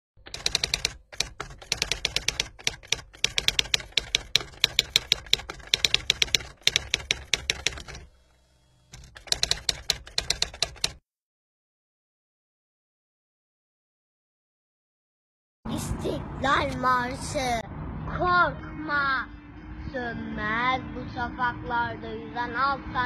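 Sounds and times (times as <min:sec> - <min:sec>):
typewriter keys clacking: 0:00.2 - 0:08.1, 0:09.0 - 0:11.0.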